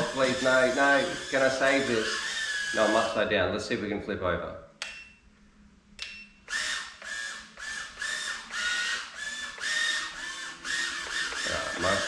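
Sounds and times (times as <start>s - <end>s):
drone motors whirring: 0.0s - 3.2s, 6.5s - 12.0s.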